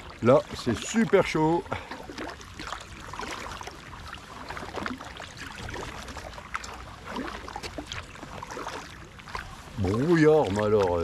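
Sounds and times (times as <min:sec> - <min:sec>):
paddle splashing in water: 0:00.0 - 0:11.0.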